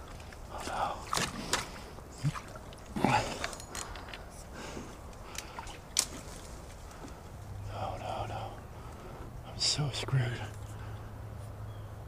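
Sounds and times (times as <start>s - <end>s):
water splashing around kayak: 0.0s - 3.5s.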